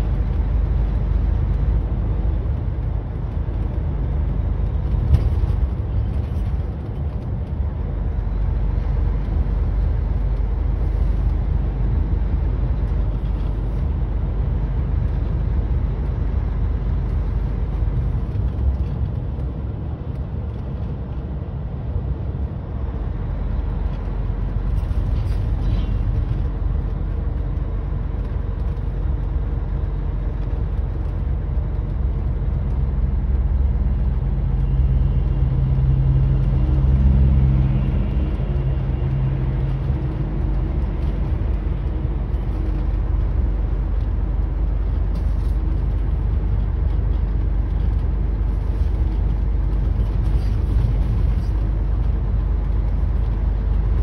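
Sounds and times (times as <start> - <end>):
deep engine drone: 0.0 - 54.0
truck engine and road noise: 0.0 - 54.0.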